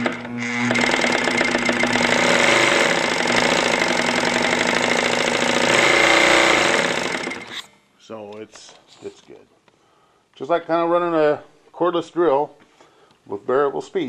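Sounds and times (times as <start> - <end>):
industrial sewing machine clatter: 0.0 - 7.5.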